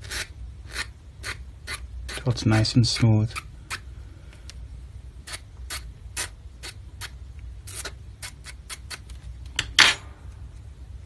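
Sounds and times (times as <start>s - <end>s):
hand file rasping on wire: 0.0s - 2.3s.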